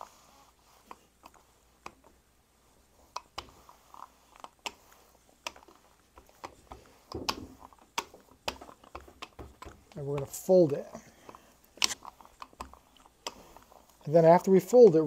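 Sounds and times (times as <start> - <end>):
rolling pin clicking and knocking: 4.4 - 13.6.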